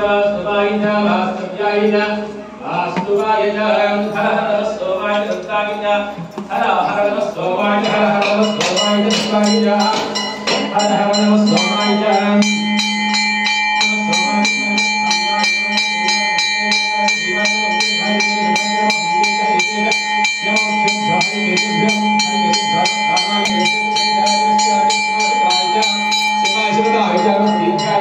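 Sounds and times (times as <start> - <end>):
temple bells ringing: 6.8 - 28.0.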